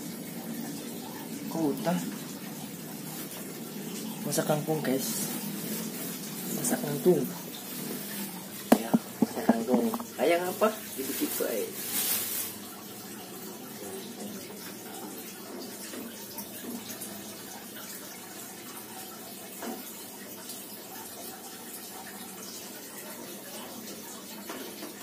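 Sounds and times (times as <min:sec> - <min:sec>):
rinsing by hand: 0:00.0 - 0:25.0
water running from a tap: 0:00.0 - 0:25.0
faint knocks: 0:08.7 - 0:10.2.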